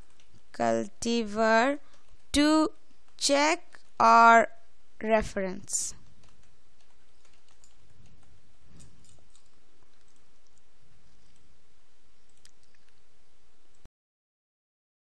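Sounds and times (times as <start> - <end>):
computer keyboard typing: 0.0 - 0.6, 1.7 - 2.3, 6.0 - 11.5, 12.2 - 13.0
faint hum: 0.0 - 13.9.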